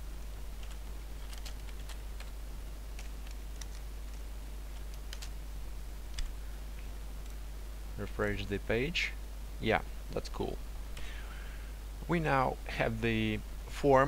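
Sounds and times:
low electrical hum: 0.0s - 14.0s
keyboard keys clicking: 0.6s - 5.4s, 6.1s - 6.3s.

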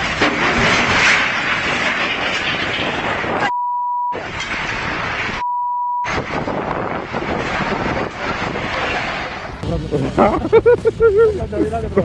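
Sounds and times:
loud rough noise: 0.0s - 3.5s, 4.2s - 5.4s, 6.0s - 12.0s
censor bleeps: 3.5s - 4.2s, 5.4s - 6.1s.

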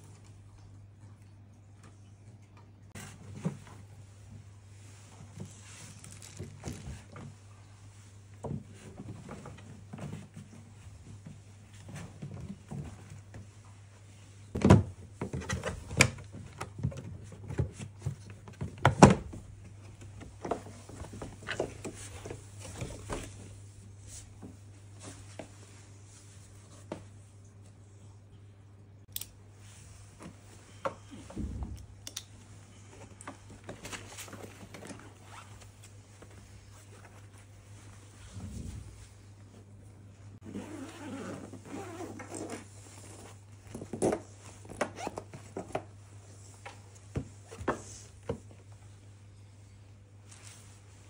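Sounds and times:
fabric rustling: 32.5s - 39.7s, 40.4s - 45.1s
zipper: 40.4s - 42.7s.

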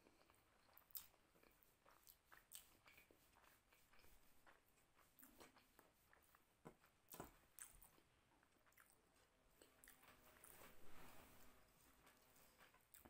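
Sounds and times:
fingers squeezing wet rice: 0.0s - 9.0s
closed-mouth chewing: 0.0s - 13.0s.

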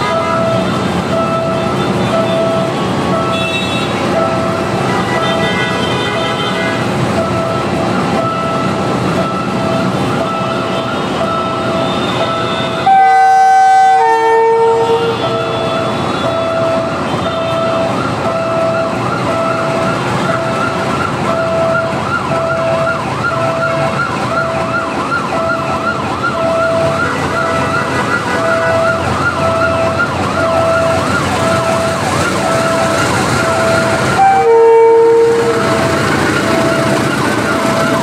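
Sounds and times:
electronic warning alarm beeping: 0.0s - 38.0s
train horn blast: 4.8s - 6.9s, 11.9s - 16.2s, 33.7s - 35.9s.

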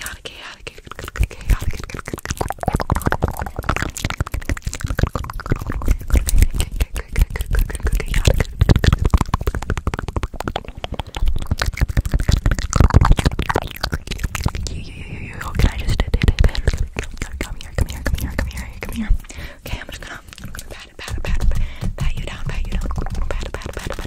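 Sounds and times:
wet mouth clicks and smacks: 0.0s - 24.0s
breath thumps on microphone: 20.3s - 24.0s.

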